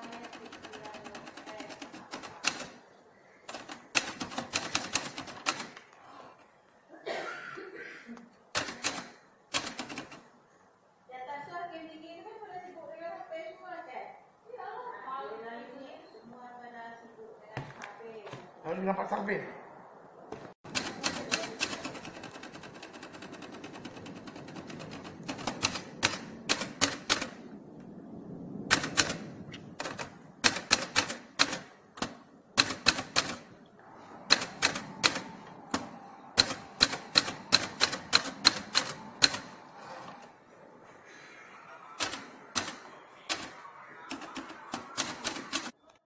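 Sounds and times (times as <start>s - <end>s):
manual typewriter typing: 0.0s - 2.8s, 3.4s - 5.9s, 8.5s - 10.3s, 20.6s - 27.4s, 28.7s - 33.6s, 34.2s - 40.3s, 42.0s - 45.8s.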